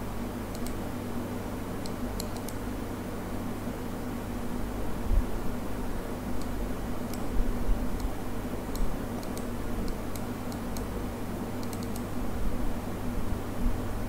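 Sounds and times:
steady background hum: 0:00.0 - 0:14.0
faint high-pitched clicks: 0:00.5 - 0:00.8, 0:01.8 - 0:02.6, 0:08.0 - 0:10.9, 0:11.6 - 0:12.1.

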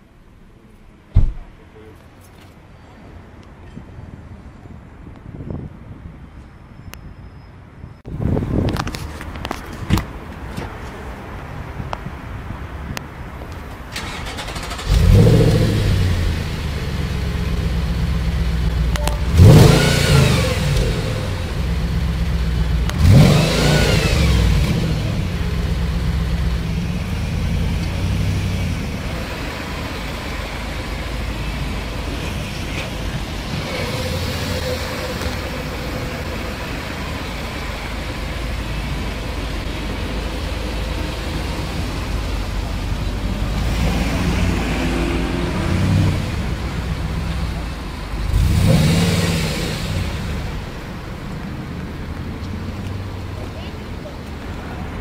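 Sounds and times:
car engine idling: 0:13.9 - 0:43.6
car engine starting and revving: 0:13.9 - 0:53.5.

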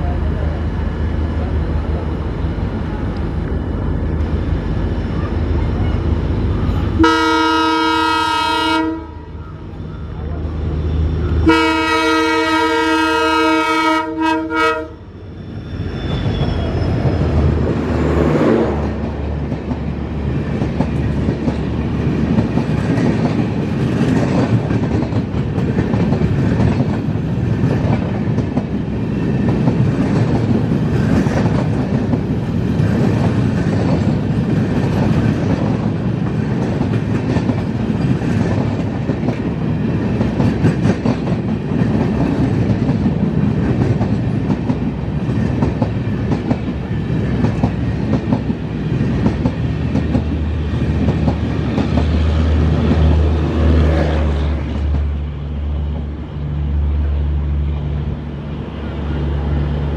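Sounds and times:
train wheels rumbling: 0:00.0 - 0:59.9
locomotive multi-tone horn: 0:06.9 - 0:09.4, 0:11.4 - 0:15.1.

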